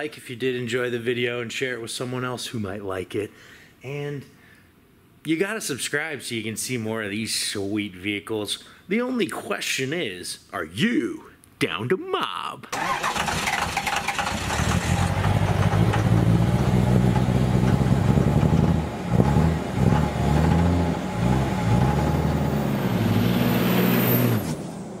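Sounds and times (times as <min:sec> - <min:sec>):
engine revving: 0:12.8 - 0:25.0.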